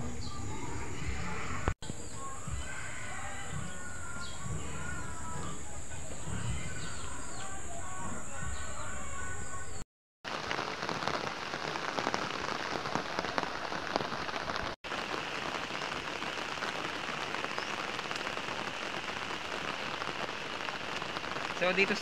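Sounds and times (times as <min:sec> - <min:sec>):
rain on plants and umbrellas: 0:10.2 - 0:22.0.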